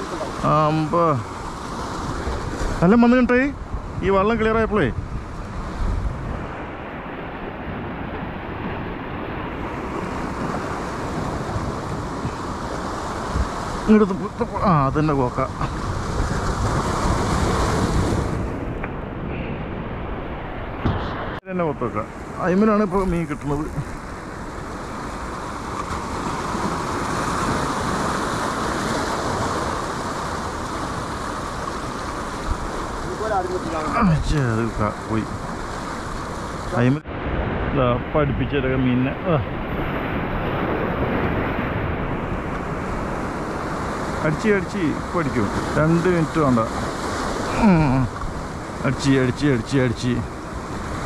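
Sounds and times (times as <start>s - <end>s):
wind buffeting microphone: 0.0s - 21.4s
surf washing against seawall: 0.0s - 51.0s.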